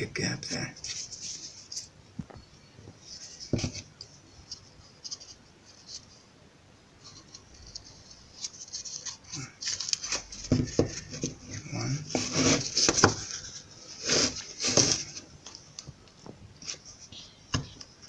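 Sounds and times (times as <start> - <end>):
fingers scratching and rubbing wood: 12.0 - 15.2.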